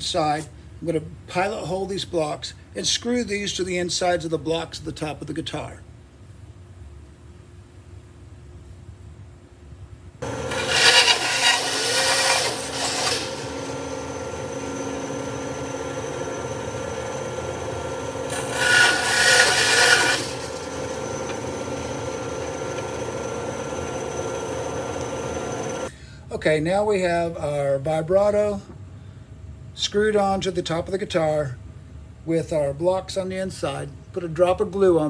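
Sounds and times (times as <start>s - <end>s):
band saw cutting wood: 10.2s - 25.9s.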